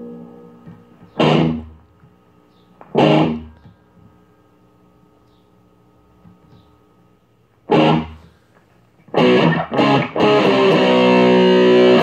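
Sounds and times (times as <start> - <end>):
distorted electric guitar chords: 0.0 - 3.8, 7.6 - 8.4, 9.0 - 12.0.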